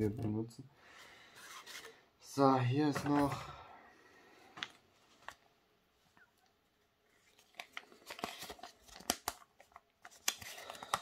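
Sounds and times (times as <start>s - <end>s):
paper crackling and crinkling: 7.1s - 11.0s.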